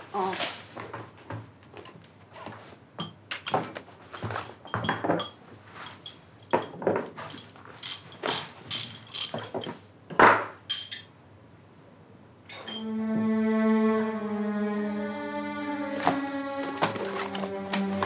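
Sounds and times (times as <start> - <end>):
metal hand tools clinking: 5.2 - 9.7.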